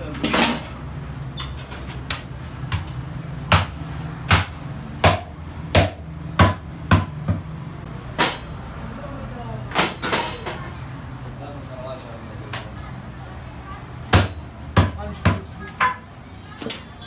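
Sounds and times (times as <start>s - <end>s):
cleaver chopping ribs on wood: 3.5s - 7.5s, 14.1s - 15.5s.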